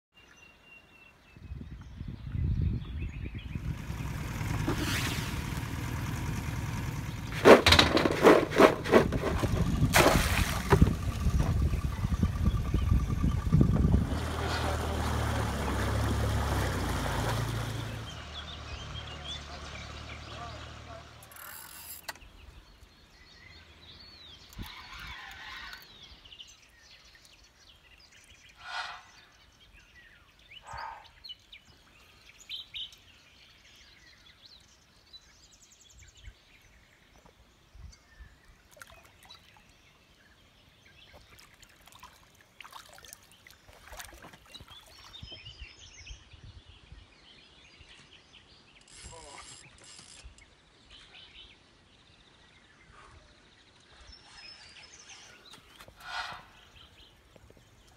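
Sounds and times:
birds calling: 0.2 - 57.9
short knocks and rustles: 7.2 - 11.6.

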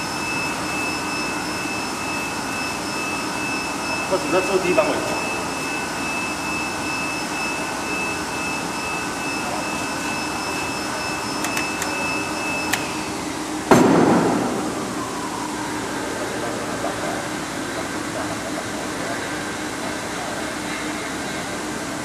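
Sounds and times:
loud thump: 13.7 - 14.7.

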